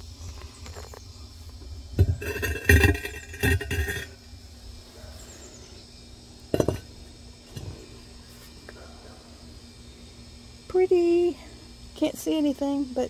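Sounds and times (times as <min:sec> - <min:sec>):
ceramic platter clinking and scraping: 0:02.0 - 0:04.2, 0:06.5 - 0:06.9.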